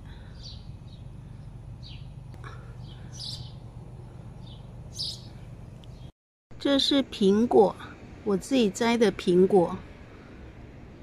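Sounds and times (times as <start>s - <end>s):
small birds chirping: 0.0s - 6.1s
steady low hum: 0.0s - 11.0s.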